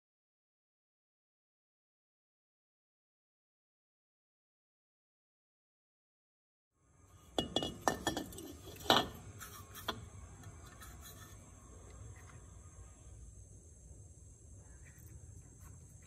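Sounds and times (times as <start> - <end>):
insects chirping: 6.8 - 16.0.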